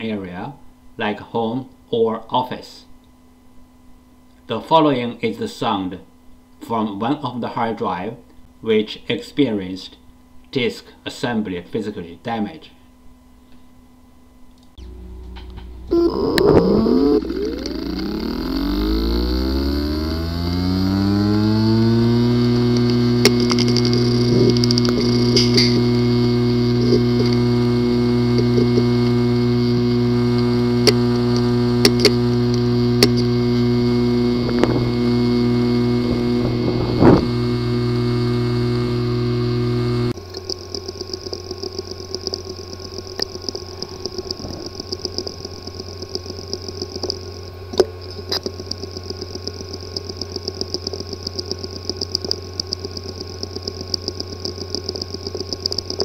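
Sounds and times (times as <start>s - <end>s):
hard drive humming: 12.8s - 56.0s
hard drive whining: 14.7s - 56.0s
hard drive clicking: 14.8s - 56.0s
rapid repeated ticking: 16.0s - 25.2s, 40.1s - 47.5s, 48.2s - 56.0s.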